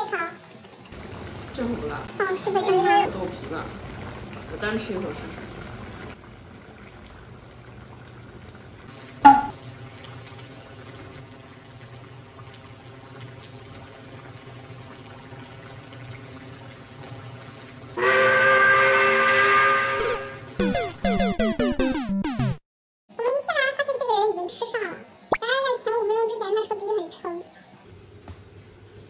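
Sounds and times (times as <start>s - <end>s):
tone sliding down in pitch: 9.3s - 9.5s
electronic video game jingle: 20.6s - 22.6s.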